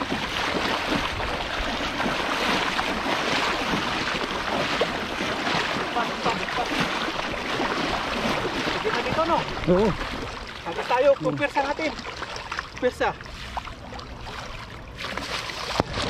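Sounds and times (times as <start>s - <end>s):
rushing water: 0.0s - 16.0s.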